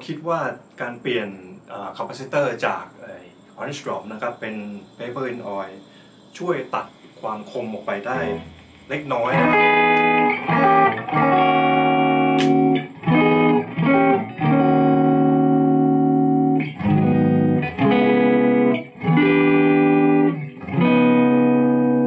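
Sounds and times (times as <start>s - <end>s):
electric guitar chords ringing: 8.1s - 22.0s.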